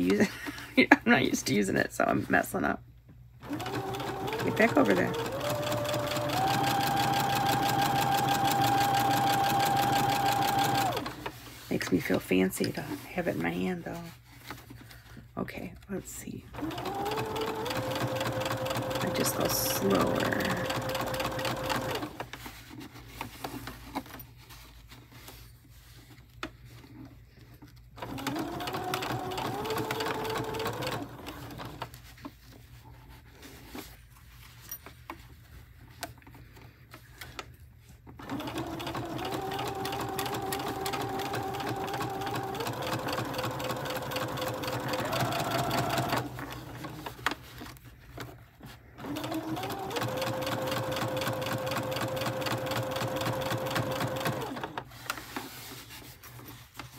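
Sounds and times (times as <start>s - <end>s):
sewing machine motor whine: 3.4s - 11.3s, 16.6s - 22.2s, 28.0s - 31.8s, 38.2s - 47.1s, 49.0s - 54.8s.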